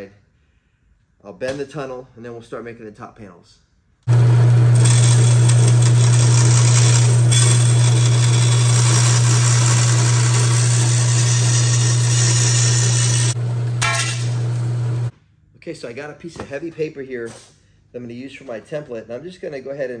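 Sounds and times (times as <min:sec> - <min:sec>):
bandsaw motor hum: 0:04.1 - 0:15.1
saw blade cutting metal sheet: 0:04.7 - 0:14.4.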